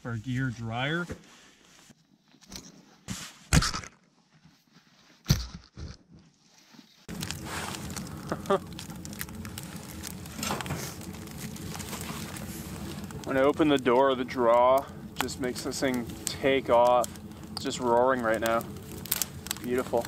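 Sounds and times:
burning wood crackling: 6.9 - 20.0
branches rustling and snapping: 7.1 - 20.0
wood stove fire roaring: 7.1 - 20.0.

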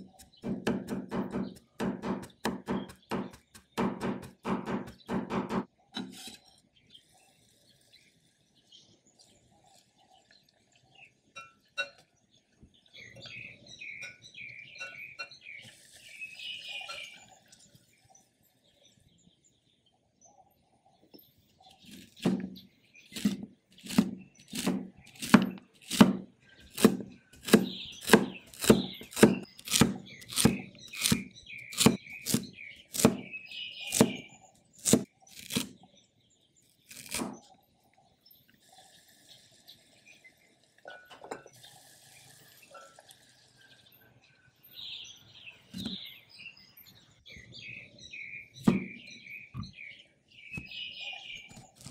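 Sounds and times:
birds chirping: 0.0 - 51.9
cleaver chopping on wooden board: 0.3 - 5.7, 21.9 - 22.6, 23.2 - 33.3, 33.9 - 35.7.

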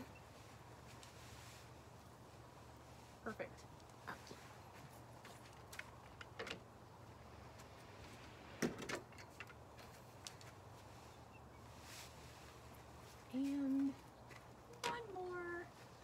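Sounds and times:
clicks and knocks of pole handling: 5.2 - 6.7, 13.7 - 15.2.

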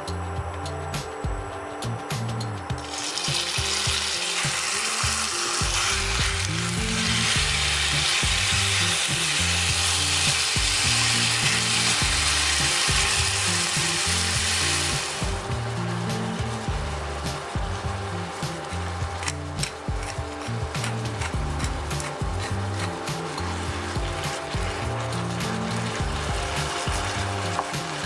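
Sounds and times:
chicken sizzling in oil: 2.8 - 28.0.

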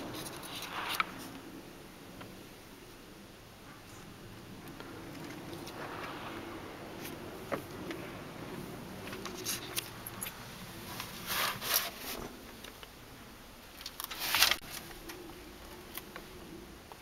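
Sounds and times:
rustling and handling noise: 0.0 - 1.4, 7.0 - 13.0, 13.7 - 17.0
faint steady hum: 0.0 - 17.0.

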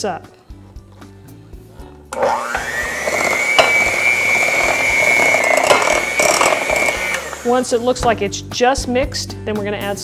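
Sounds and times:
electric hand mixer whining: 2.2 - 7.9.

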